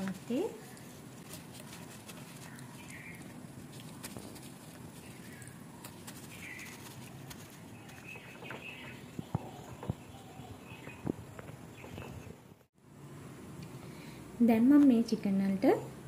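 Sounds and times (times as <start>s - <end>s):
birds chirping: 2.2s - 3.4s, 4.9s - 12.7s.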